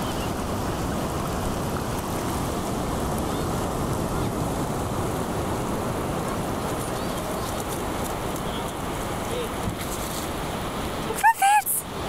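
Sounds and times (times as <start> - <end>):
ocean surf rushing: 0.0 - 12.0.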